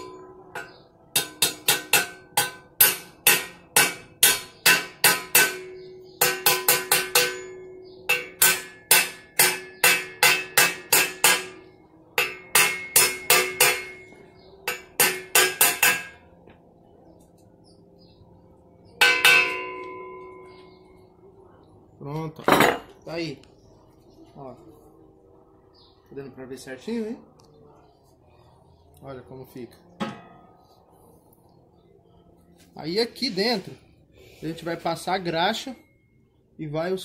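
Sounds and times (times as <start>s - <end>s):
hammer ringing blows on metal: 0.0s - 16.4s, 18.8s - 21.0s.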